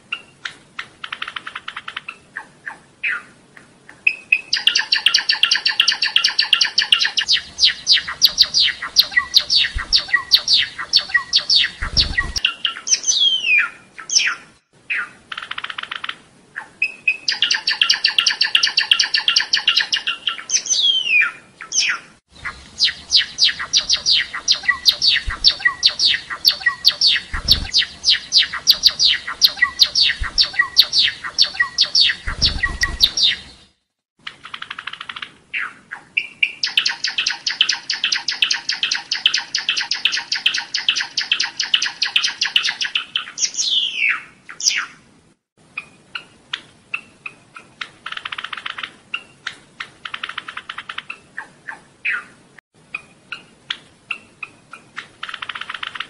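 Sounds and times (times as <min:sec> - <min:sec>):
sparrow singing clicking notes: 0:03.6 - 0:14.4, 0:17.3 - 0:33.7
gliding bird whistle: 0:04.1 - 0:14.4, 0:22.4 - 0:33.5.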